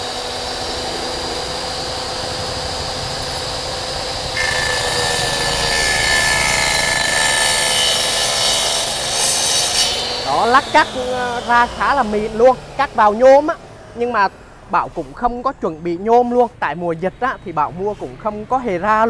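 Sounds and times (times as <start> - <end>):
miter saw motor whine: 0.0 - 14.8
saw blade rasping cut: 0.0 - 15.3.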